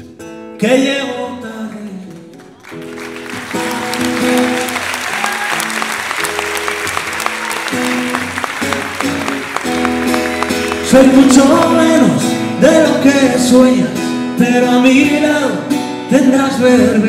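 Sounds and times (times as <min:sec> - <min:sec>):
audience applause: 0:02.3 - 0:12.2
acoustic guitar strumming chords: 0:02.7 - 0:17.0
person singing: 0:10.4 - 0:17.0.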